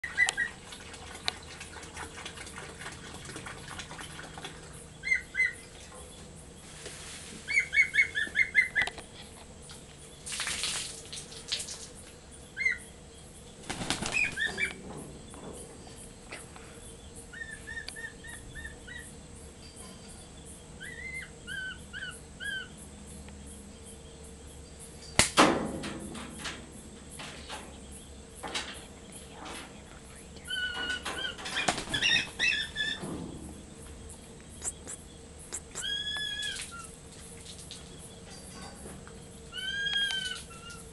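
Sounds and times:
bird high chirping calls: 4.7s - 6.2s, 7.5s - 9.0s, 12.5s - 13.0s, 13.9s - 14.8s, 17.0s - 19.2s, 20.0s - 22.8s, 30.4s - 33.0s, 34.6s - 37.0s
wing flapping: 13.6s - 14.8s, 30.8s - 33.0s.

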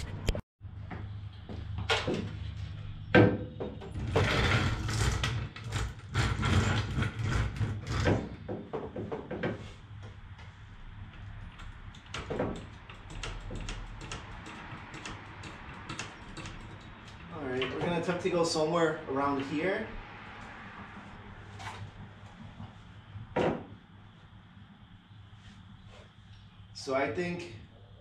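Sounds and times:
floor jack clanking and rolling: 3.2s - 9.6s.

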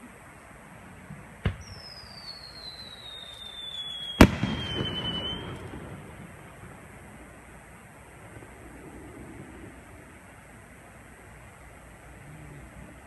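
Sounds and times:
firework launch thump: 1.1s - 1.8s, 4.2s - 5.9s
firework bang with rumbling echo: 1.4s - 2.3s, 3.7s - 6.8s
falling firework whistle: 1.4s - 6.4s.

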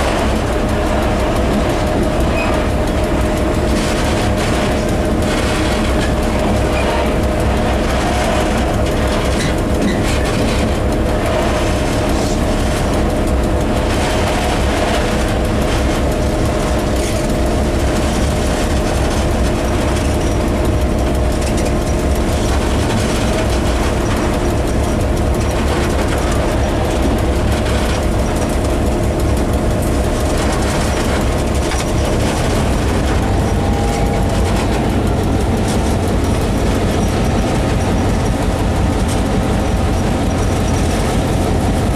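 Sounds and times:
locomotive engine drone: 0.0s - 41.9s.

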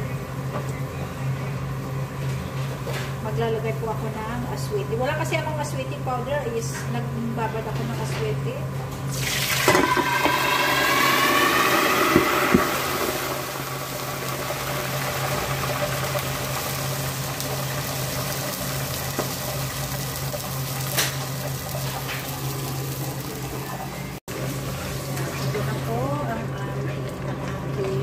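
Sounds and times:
hot oil sizzling and spattering: 9.1s - 25.8s.

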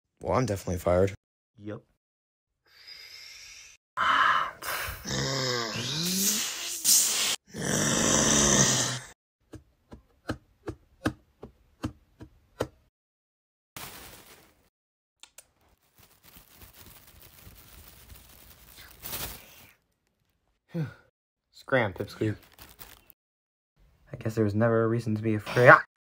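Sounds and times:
dinosaur roar: 7.5s - 9.2s.

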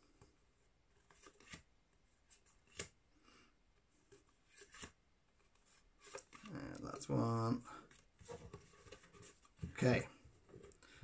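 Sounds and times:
cards rustling and flicking: 1.0s - 1.7s, 4.1s - 7.2s.

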